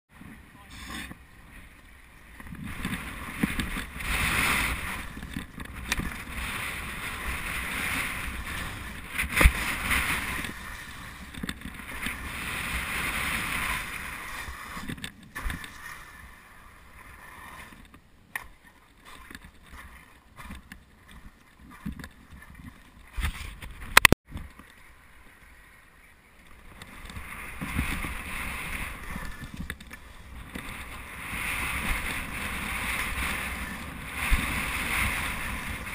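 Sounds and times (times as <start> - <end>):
skis scraping on dry slope: 2.5 - 17.8, 26.5 - 35.9.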